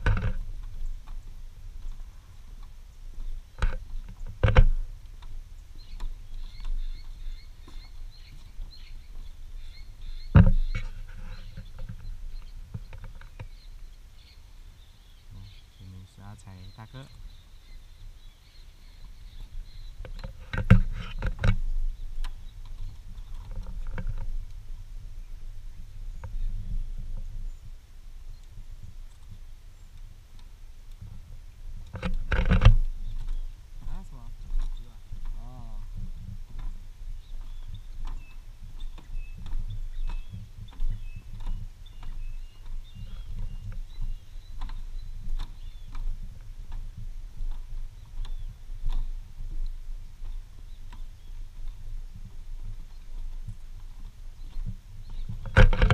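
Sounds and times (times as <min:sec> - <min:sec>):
steady low rumble: 0:00.0 - 0:55.9
birds whistling: 0:05.8 - 0:21.2, 0:37.2 - 0:46.2, 0:47.8 - 0:49.1
footsteps on wooden planks: 0:30.4 - 0:55.9.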